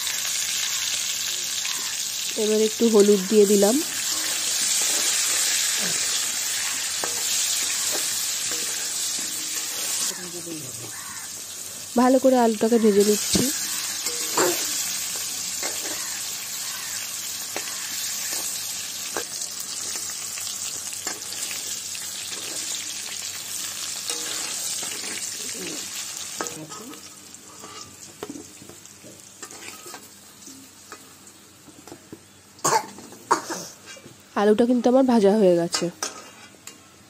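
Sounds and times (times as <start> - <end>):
potatoes sizzling in oil: 0.0 - 37.0
metal spatula scraping pan: 3.8 - 10.2, 13.1 - 16.2, 24.0 - 25.3, 26.4 - 28.0, 29.4 - 30.0, 35.8 - 36.6.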